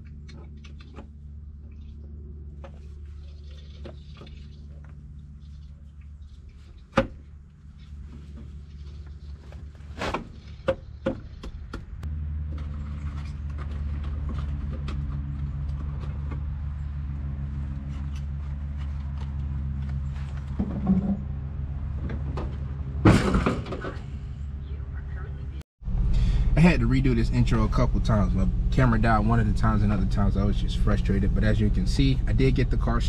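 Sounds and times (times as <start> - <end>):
knocks and clicks in engine bay: 10.5 - 16.6
car engine idling: 24.4 - 33.0.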